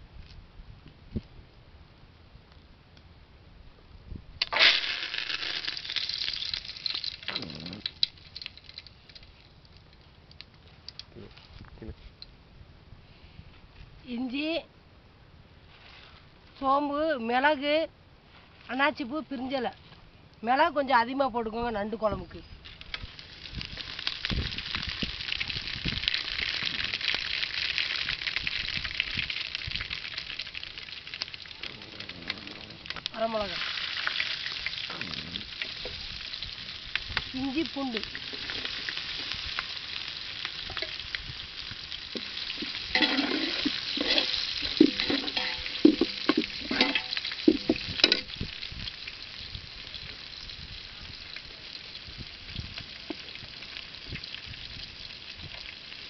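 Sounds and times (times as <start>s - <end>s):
leaves sizzling in hot oil: 4.5s - 10.0s, 22.8s - 56.0s
low thuds: 47.5s - 48.5s.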